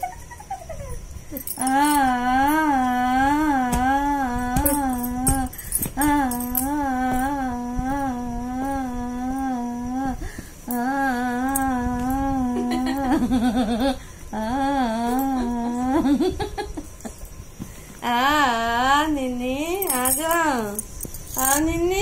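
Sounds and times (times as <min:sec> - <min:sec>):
person humming a tune: 0:00.0 - 0:16.4, 0:18.0 - 0:22.0.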